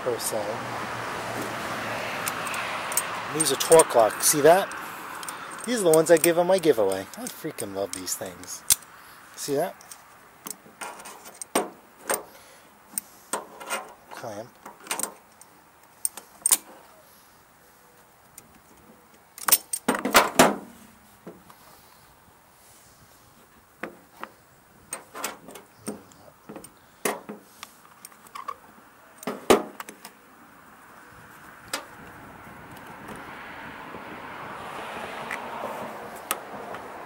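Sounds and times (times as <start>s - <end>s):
faint steady noise: 0.0s - 33.2s
metal tools clicking and clanking: 2.2s - 8.9s, 9.7s - 12.3s.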